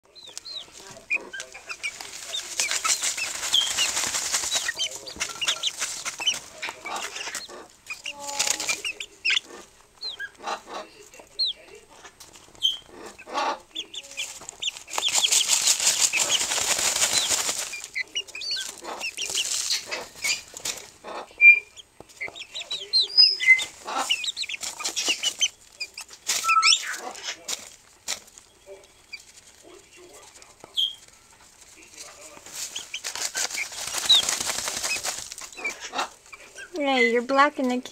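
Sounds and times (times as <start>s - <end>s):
chicks chirping: 0.0s - 37.9s
chickens flapping wings: 0.4s - 9.0s, 13.8s - 20.9s, 23.6s - 28.4s, 31.6s - 36.1s.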